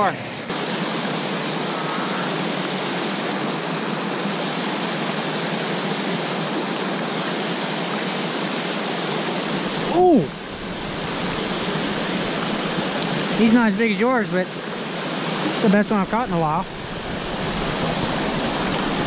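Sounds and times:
waterfall rushing: 0.0s - 19.0s
man exclaiming: 9.9s - 10.4s.

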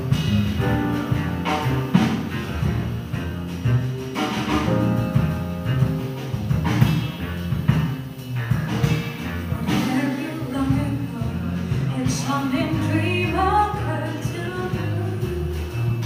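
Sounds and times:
piano bass and drums: 0.0s - 16.0s.

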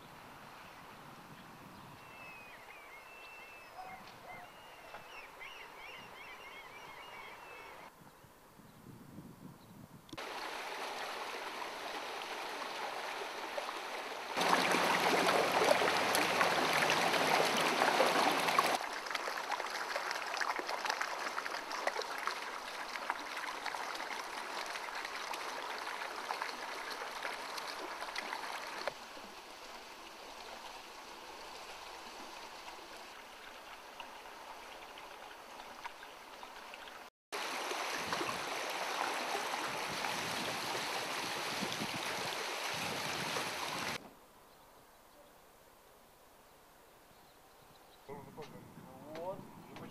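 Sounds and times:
river water running over stones: 10.2s - 44.0s.

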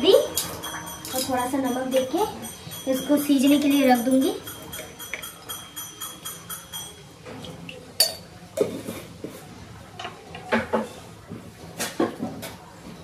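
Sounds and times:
utensils clinking against a pot: 0.0s - 9.3s.

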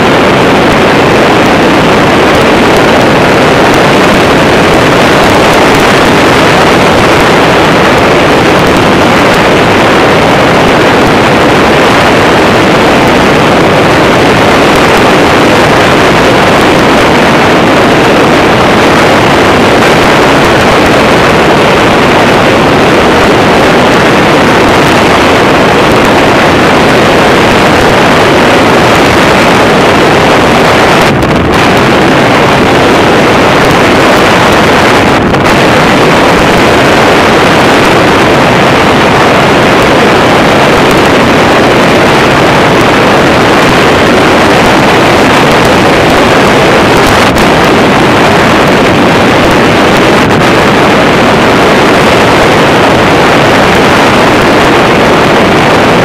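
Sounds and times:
microlight engine and propeller drone: 0.0s - 56.0s
wind noise on microphone: 0.0s - 56.0s.

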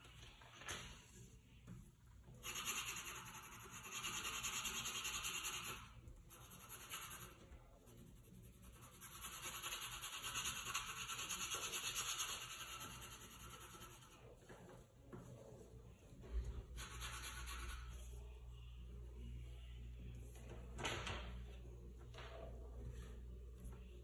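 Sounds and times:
rubbing on drawing paper: 2.4s - 14.6s, 16.6s - 18.2s.

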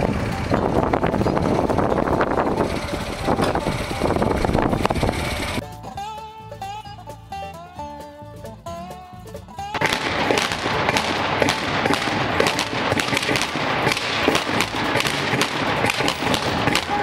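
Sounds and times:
background music: 2.3s - 17.0s
revolvers firing blanks: 9.7s - 17.0s.

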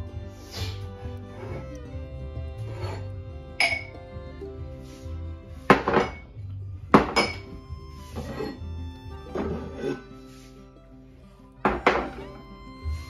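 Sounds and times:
background music with steady beat: 0.0s - 13.0s
drinking glasses clinking: 3.6s - 4.0s, 5.7s - 7.6s, 11.6s - 12.4s.

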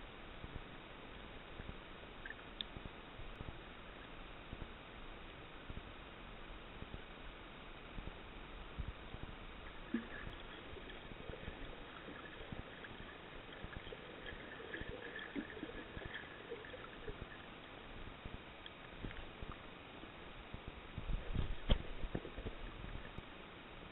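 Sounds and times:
underwater hiss: 9.7s - 17.4s
bubbling blips: 9.7s - 17.6s
small clicks and crackles: 18.3s - 19.7s.

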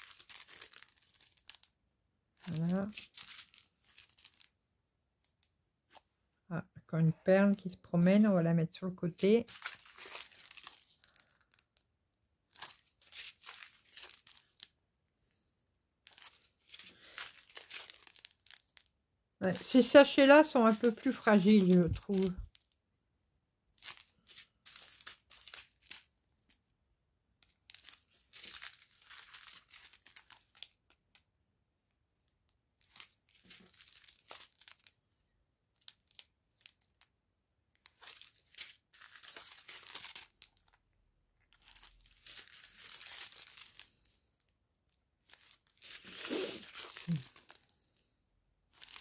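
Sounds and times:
plastic sachets crinkling: 0.0s - 1.8s, 2.4s - 4.6s, 9.0s - 11.8s, 12.4s - 14.8s, 16.0s - 22.8s, 23.7s - 26.6s, 27.4s - 31.2s, 32.2s - 35.0s, 35.7s - 37.1s, 37.7s - 44.3s, 45.2s - 47.7s, 48.7s - 49.0s.

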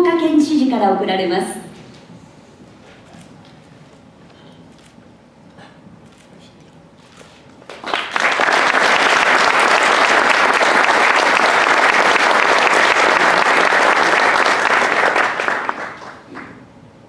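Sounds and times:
audience applauding: 7.7s - 16.7s.

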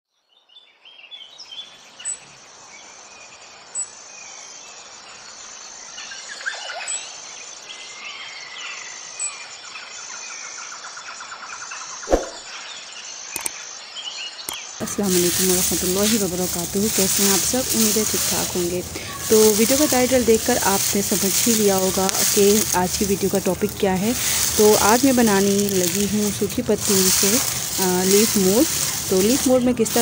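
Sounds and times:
high insect drone: 12.6s - 30.0s
birds chirping: 14.4s - 30.0s.

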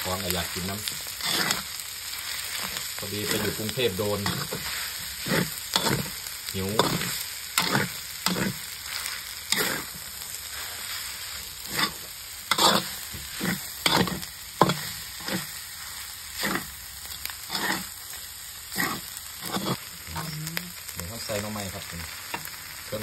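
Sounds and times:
food sizzling in a pan: 0.0s - 23.0s
metal ladle scraping a pan: 1.1s - 1.8s, 2.4s - 10.0s, 11.6s - 15.6s, 16.3s - 16.8s, 17.4s - 17.9s, 18.7s - 19.9s.

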